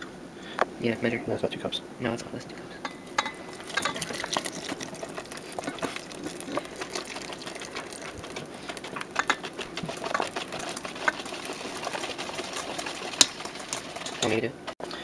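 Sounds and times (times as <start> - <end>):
wire whisk beating in metal pot: 2.8 - 15.0.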